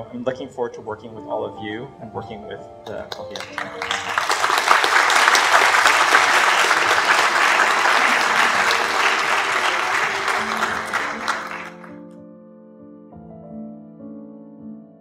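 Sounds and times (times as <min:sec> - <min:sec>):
soft background music: 0:00.0 - 0:04.4
audience applauding: 0:03.1 - 0:12.0.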